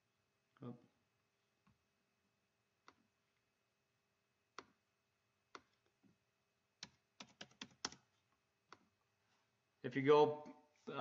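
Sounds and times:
keyboard typing: 0:06.8 - 0:08.9.

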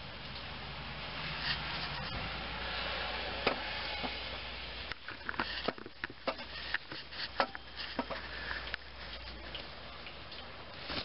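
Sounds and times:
light clicks and knocks: 0:04.9 - 0:09.7
rustling: 0:04.9 - 0:09.8, 0:10.7 - 0:11.0.

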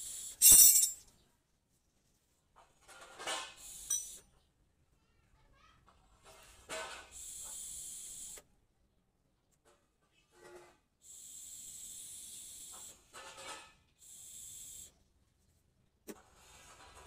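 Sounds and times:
man blowing air through tube: 0:11.0 - 0:13.0.

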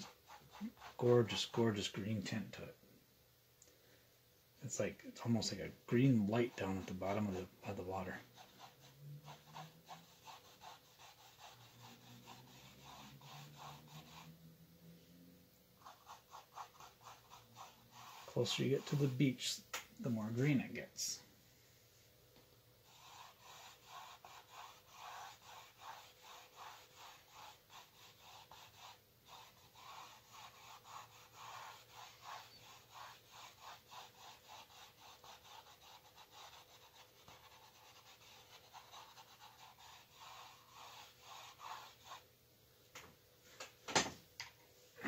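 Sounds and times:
paintbrush scrubbing canvas: 0:00.0 - 0:02.4, 0:05.2 - 0:21.2, 0:22.8 - 0:42.3.

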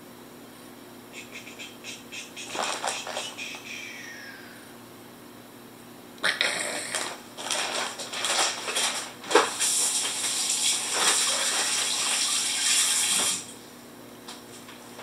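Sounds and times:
plastic bag crinkling: 0:02.5 - 0:03.3, 0:06.9 - 0:12.3
kitchen faucet running into sink: 0:10.1 - 0:13.4.

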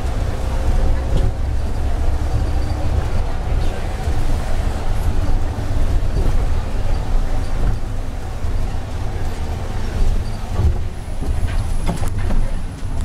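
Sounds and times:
bus engine and road rumble: 0:00.0 - 0:13.0
rattles and knocks: 0:09.2 - 0:13.0.

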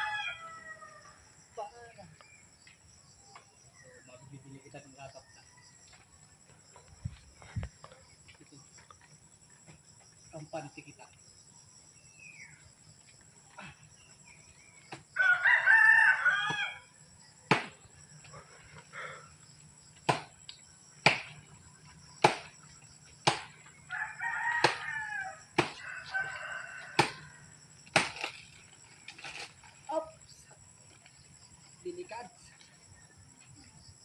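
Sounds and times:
rooster crowing: 0:00.0 - 0:01.3, 0:15.1 - 0:17.0, 0:23.9 - 0:27.6
high insect drone: 0:00.0 - 0:34.0
sharp knocks: 0:17.5 - 0:17.8, 0:20.0 - 0:20.3, 0:21.0 - 0:21.4, 0:22.2 - 0:22.5, 0:23.2 - 0:23.5, 0:25.6 - 0:25.8.

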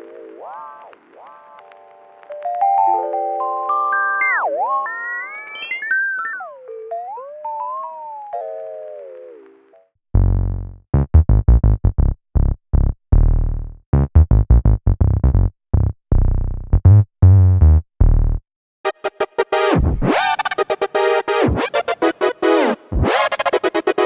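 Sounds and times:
deep synth bass notes: 0:10.2 - 0:18.4, 0:19.5 - 0:24.0
glitchy saw synth with rapid clicks: 0:18.9 - 0:24.0.

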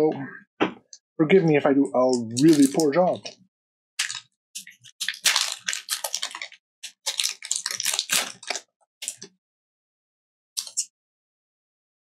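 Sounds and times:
foil wrapper crinkling and tearing: 0:02.4 - 0:03.3, 0:04.0 - 0:09.3.

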